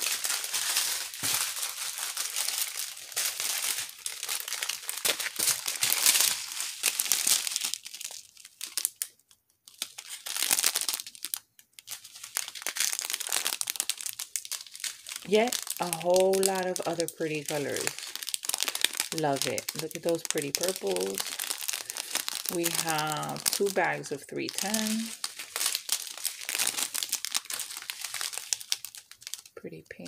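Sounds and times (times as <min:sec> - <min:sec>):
plastic bags crinkling: 0:00.0 - 0:30.0.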